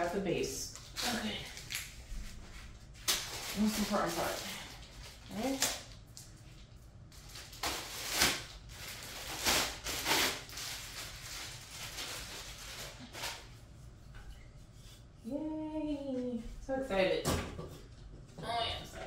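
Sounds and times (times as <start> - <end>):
plastic packaging rustling: 0.7 - 13.6.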